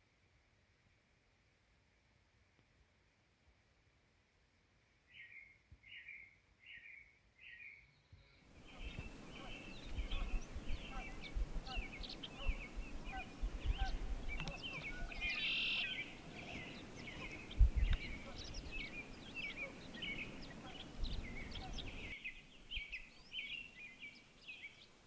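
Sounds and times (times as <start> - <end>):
birds chirping and whistling: 8.7 - 24.8.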